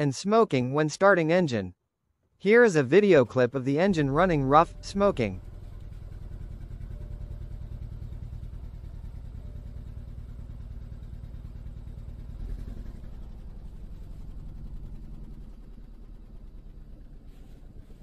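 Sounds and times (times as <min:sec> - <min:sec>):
car engine idling rough: 0:03.8 - 0:18.0.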